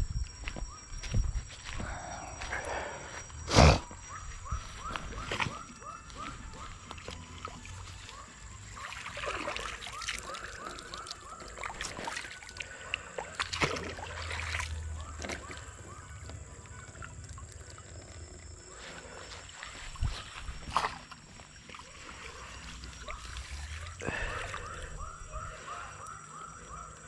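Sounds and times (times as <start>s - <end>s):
net sloshing through water: 6.2s - 15.6s, 18.7s - 25.8s.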